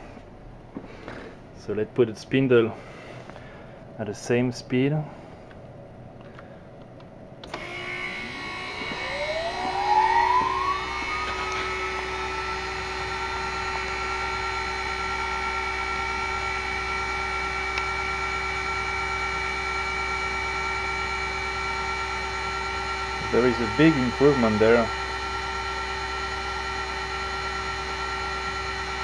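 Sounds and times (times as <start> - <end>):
spindle motor whining: 7.4 - 29.0.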